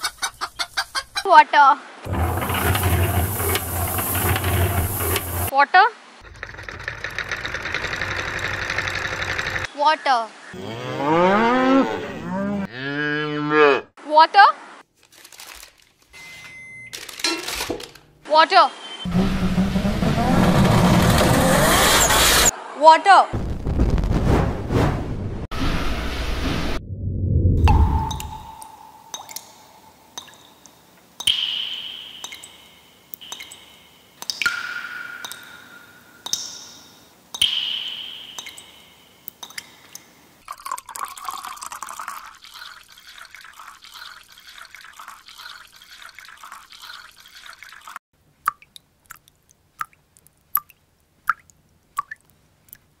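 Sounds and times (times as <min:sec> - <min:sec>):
water hissing: 0:02.0 - 0:05.5
water drops plopping: 0:27.6 - 0:36.7, 0:37.4 - 0:39.8, 0:46.2 - 0:52.8.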